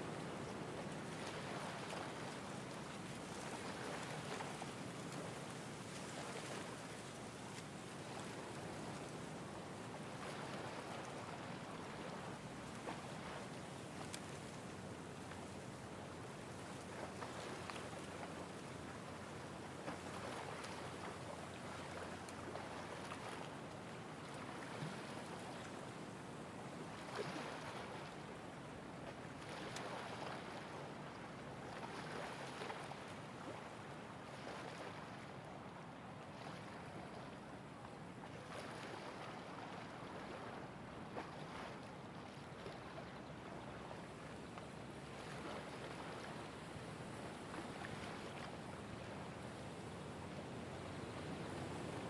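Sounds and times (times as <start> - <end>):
light breeze: 0.0 - 52.0
small waves lapping: 0.0 - 52.0
faint ticks: 14.0 - 14.6.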